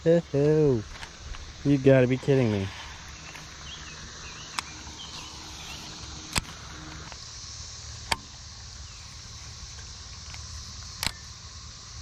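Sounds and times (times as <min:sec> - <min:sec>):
sharp clicks: 0:04.5 - 0:07.2, 0:09.8 - 0:11.3.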